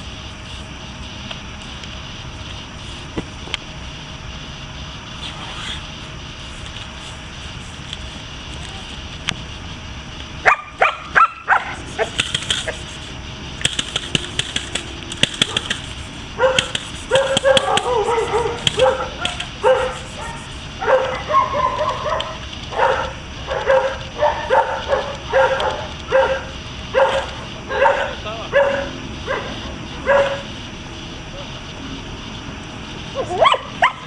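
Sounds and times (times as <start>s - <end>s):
dog barking: 10.4s - 12.8s, 15.4s - 15.8s, 16.4s - 30.5s, 33.2s - 34.0s
sharp clicks: 11.9s - 20.1s, 25.0s - 26.1s.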